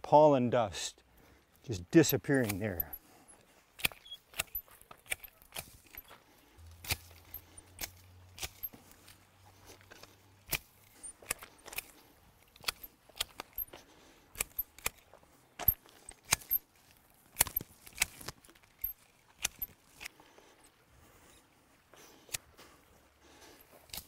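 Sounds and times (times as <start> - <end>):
hedge shears snipping branches: 2.1 - 3.0, 3.8 - 9.2, 10.4 - 13.6, 14.3 - 16.7, 17.3 - 20.2.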